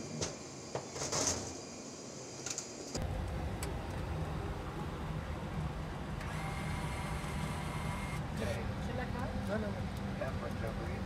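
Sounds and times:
cockpit ventilation hum: 0:00.0 - 0:11.0
faint steady whine: 0:00.0 - 0:11.0.

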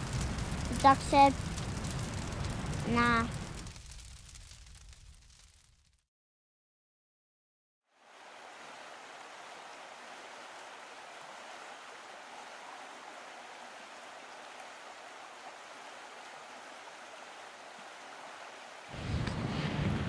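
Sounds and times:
stream rushing over rocks: 0:08.0 - 0:19.0.

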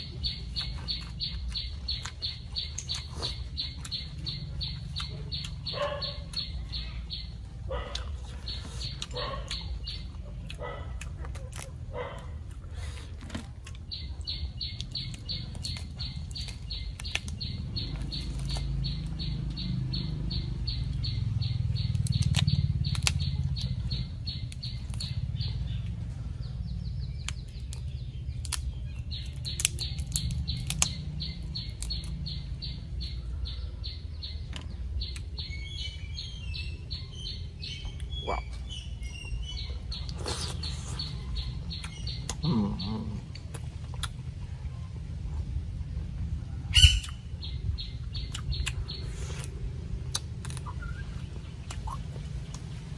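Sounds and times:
chewing: 0:00.5 - 0:06.6, 0:07.8 - 0:19.2, 0:39.9 - 0:44.4, 0:48.3 - 0:52.9.

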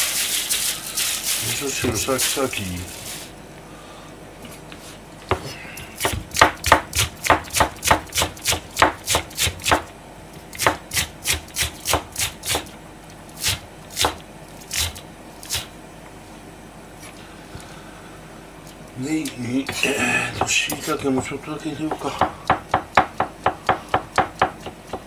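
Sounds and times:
knife slicing onion on cutting board: 0:05.8 - 0:09.9, 0:10.5 - 0:12.7, 0:13.4 - 0:15.7.

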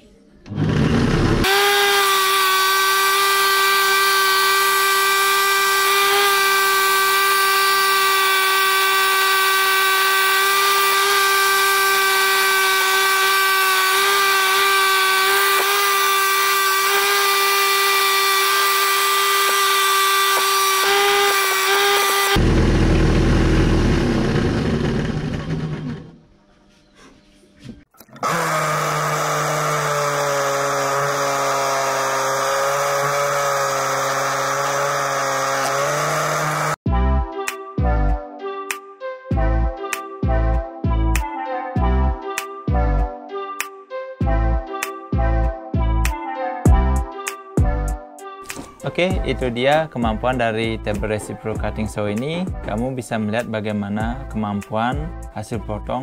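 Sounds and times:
drill powered saw cutting steel rod: 0:00.5 - 0:26.1, 0:28.2 - 0:36.8.

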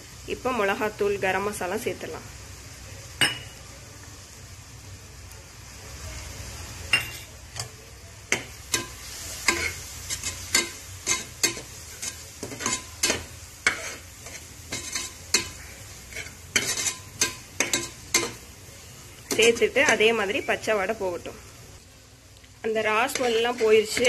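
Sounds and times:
faint sizzle of frying: 0:00.0 - 0:24.0
metal spoon scraping pot: 0:08.7 - 0:18.4, 0:23.0 - 0:24.0.

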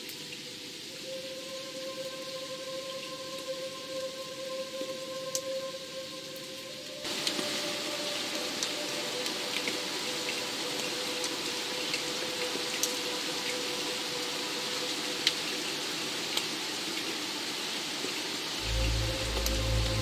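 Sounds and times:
rain hiss: 0:00.0 - 0:20.0
deep low hum: 0:18.6 - 0:20.0.

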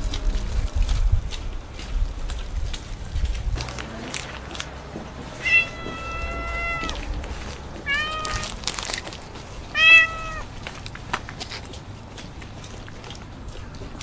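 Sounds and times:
cat meowing: 0:05.3 - 0:08.6, 0:09.7 - 0:10.5.

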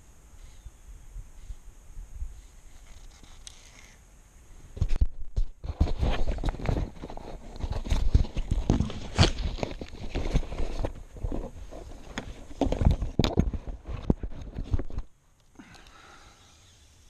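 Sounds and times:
camera handling knocks and rubbing: 0:04.8 - 0:15.1.

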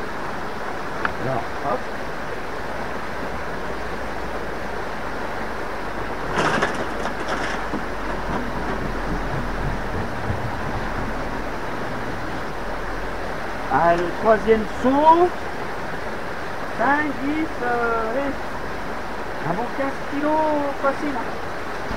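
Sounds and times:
small river rushing: 0:00.0 - 0:21.9
scrap metal clattering: 0:06.3 - 0:11.0.

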